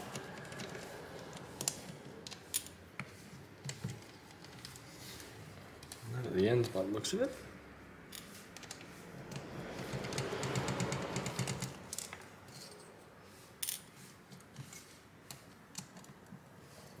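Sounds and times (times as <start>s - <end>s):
screwdriver ticking and scraping: 8.2s - 12.7s.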